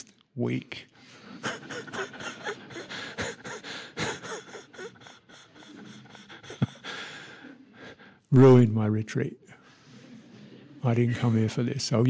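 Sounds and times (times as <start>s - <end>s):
man imitating sobbing: 1.4s - 7.2s.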